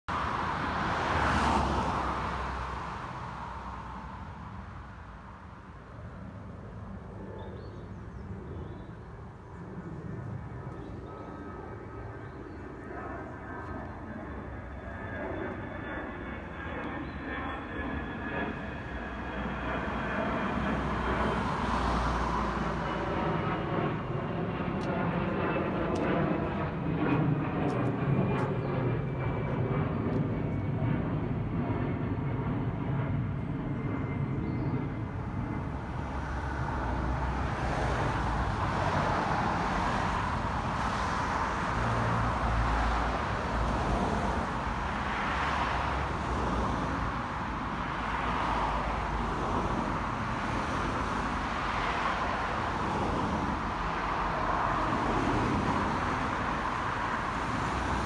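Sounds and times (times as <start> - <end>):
road vehicle passing: 0.1 - 5.7, 18.4 - 30.3, 34.9 - 58.0
low outdoor rumble: 2.9 - 40.8.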